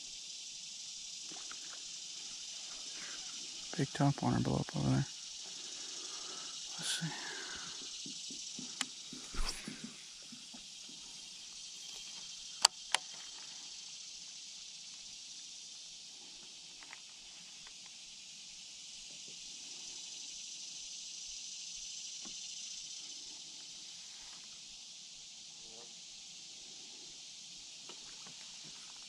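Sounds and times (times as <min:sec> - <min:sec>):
high-pitched insect chorus: 0:00.0 - 0:29.0
sharp clicks: 0:12.6 - 0:13.2.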